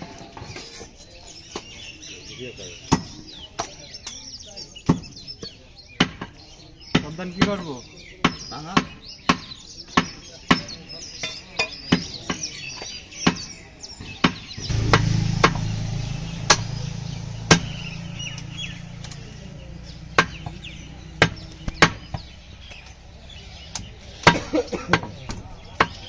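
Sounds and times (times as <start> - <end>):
cleaver chopping meat on wood: 8.2 - 12.5, 21.2 - 22.8.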